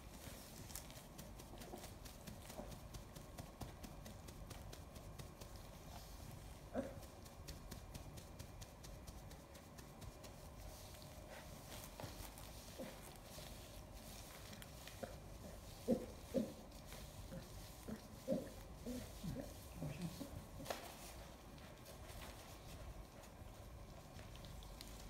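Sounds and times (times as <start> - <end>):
paws rustling on padded table: 0.0 - 25.0.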